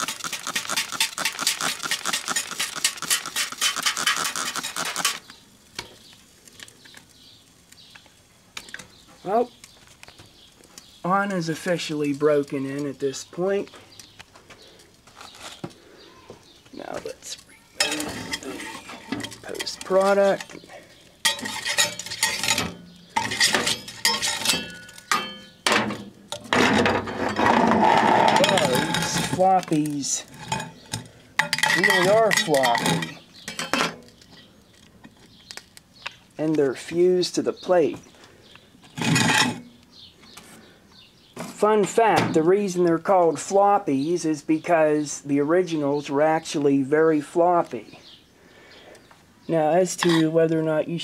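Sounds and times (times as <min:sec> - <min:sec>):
spray bottle squirting water: 0:00.0 - 0:05.3
scraping rattle: 0:17.8 - 0:20.6, 0:21.2 - 0:25.9, 0:26.5 - 0:34.5.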